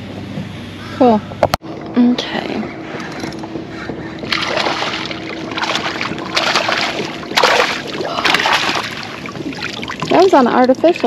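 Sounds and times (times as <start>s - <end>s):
water splashing beside a kayak: 4.3s - 11.0s.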